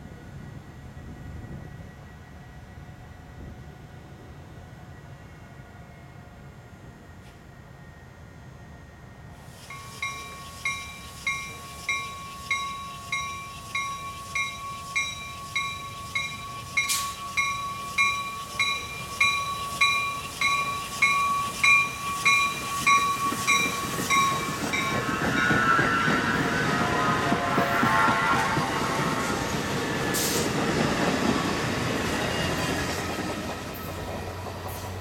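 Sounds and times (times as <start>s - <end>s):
train wheels rumbling on rail: 9.2s - 35.0s
train bell ringing: 9.6s - 29.3s.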